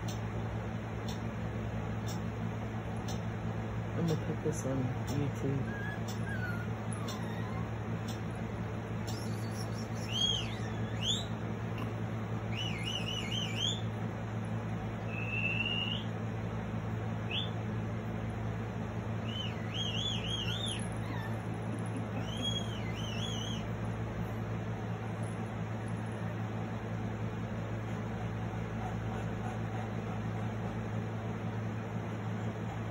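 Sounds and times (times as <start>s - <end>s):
steady low hum: 0.0s - 32.9s
bird song from phone speaker: 9.0s - 11.4s, 12.5s - 13.9s, 19.2s - 20.8s, 22.2s - 23.7s.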